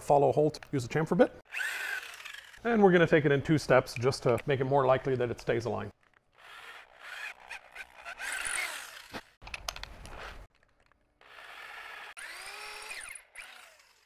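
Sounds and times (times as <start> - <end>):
drill motor spinning up: 1.5 - 2.6, 6.3 - 9.4, 11.2 - 14.0.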